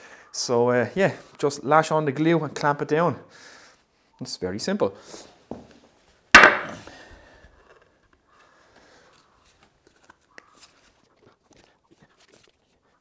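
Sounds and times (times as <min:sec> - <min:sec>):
sharp ringing knock: 0:06.4 - 0:06.8.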